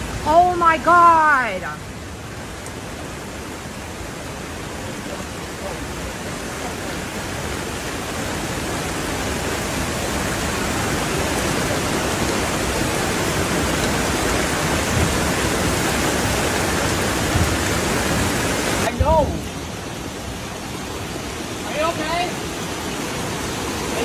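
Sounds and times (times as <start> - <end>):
floodwater rushing: 0.0 - 24.0.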